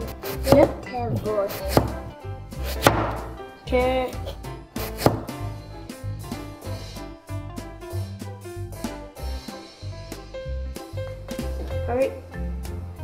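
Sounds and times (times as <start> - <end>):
knife cutting potato on board: 0.0 - 3.4, 4.1 - 5.4.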